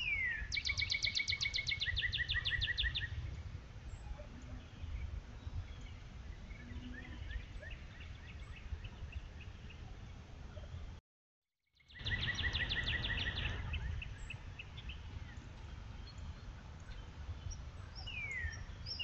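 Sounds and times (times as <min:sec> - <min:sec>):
small songbirds chirping: 0:00.0 - 0:11.0, 0:11.8 - 0:19.0.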